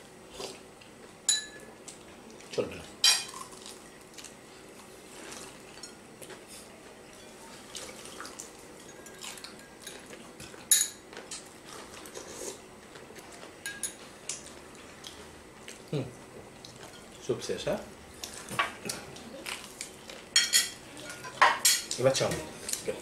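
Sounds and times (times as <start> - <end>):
spoons clinking on bowls: 13.6 - 14.0, 20.4 - 21.9.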